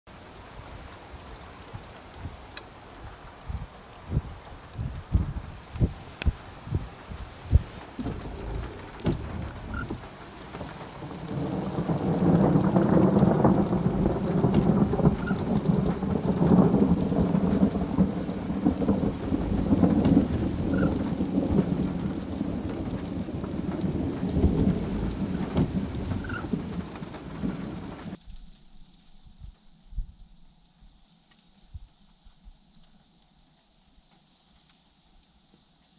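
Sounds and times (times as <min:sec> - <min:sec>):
rolling thunder rumble: 0:03.1 - 0:28.2.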